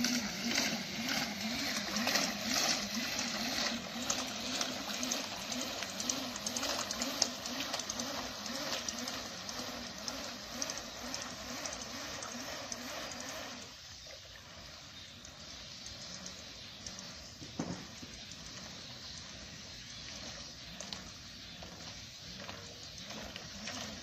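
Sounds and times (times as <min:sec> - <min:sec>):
pedal propeller churning water: 0:00.0 - 0:24.0.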